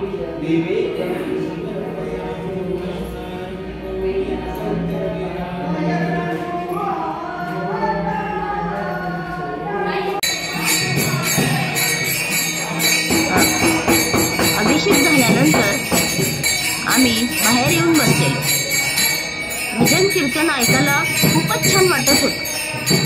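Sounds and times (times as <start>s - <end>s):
devotional singing: 0.0s - 23.0s
group of voices singing: 0.0s - 23.0s
small hand cymbals jingling: 10.2s - 23.0s.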